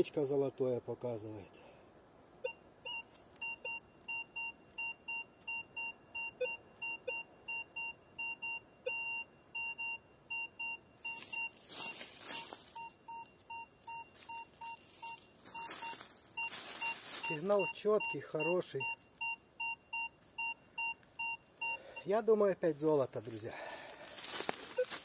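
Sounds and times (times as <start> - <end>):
metal detector two-tone beeps: 2.4 - 22.2, 24.7 - 25.0
dry leaves rustling underfoot: 11.1 - 17.9, 22.8 - 25.0.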